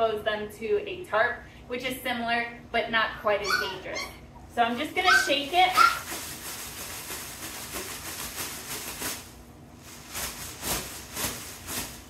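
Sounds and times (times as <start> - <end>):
plastic bag crinkling: 5.1 - 12.0.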